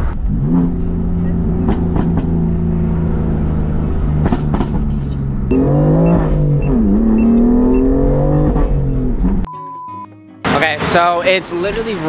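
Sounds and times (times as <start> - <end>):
car engine droning from inside: 0.0 - 9.5.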